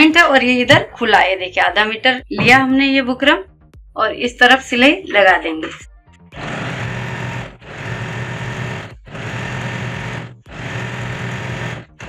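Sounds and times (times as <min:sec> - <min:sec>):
electric sewing machine stitching: 0:06.3 - 0:12.0.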